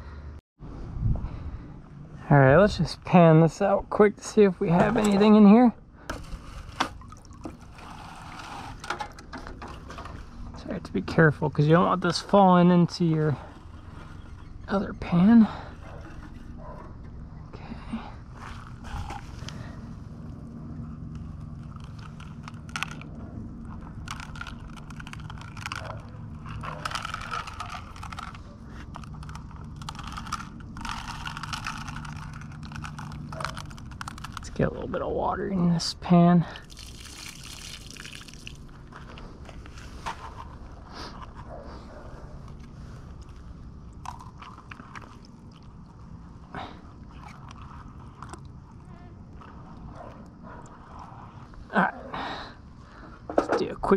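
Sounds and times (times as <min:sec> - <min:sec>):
gritty crunches and scrapes: 0:02.7 - 0:17.2, 0:17.8 - 0:35.8, 0:36.4 - 0:51.8
gravel rattling into pan: 0:21.5 - 0:34.7, 0:36.6 - 0:40.6
sand and gravel shifting: 0:36.4 - 0:51.7.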